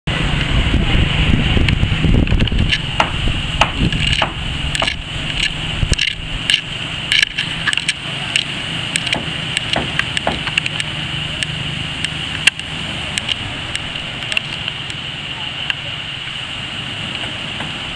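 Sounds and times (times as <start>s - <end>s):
wind rumble on microphone: 0.1s - 8.0s
hammering on wooden hull: 2.9s - 5.0s, 9.0s - 10.7s.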